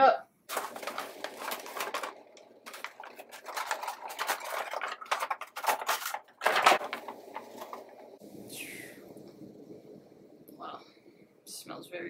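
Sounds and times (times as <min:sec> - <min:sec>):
packaging rustling and crinkling: 0:00.5 - 0:08.2.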